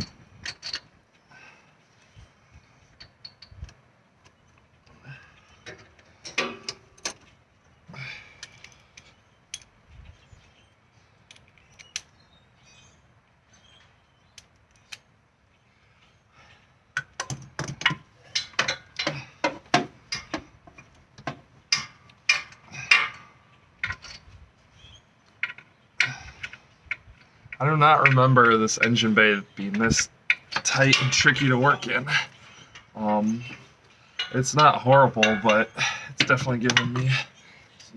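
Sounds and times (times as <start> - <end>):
metal sockets clinking: 0.0 - 0.9, 17.0 - 24.3, 25.3 - 37.2.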